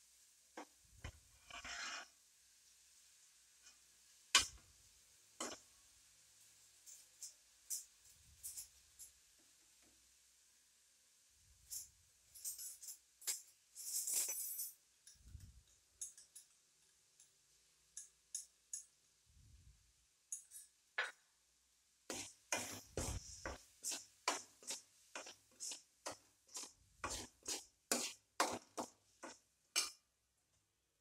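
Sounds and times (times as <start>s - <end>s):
metal spoon scraping a metal pan: 1.0s - 2.1s, 5.4s - 5.6s, 11.7s - 15.4s, 22.1s - 30.0s.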